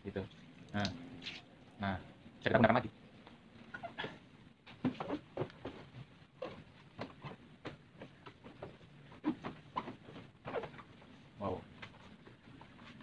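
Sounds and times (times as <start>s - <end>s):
cloth squeaks: 3.7s - 4.2s, 8.4s - 11.2s
cloth rubbing wet plastic: 4.8s - 13.0s.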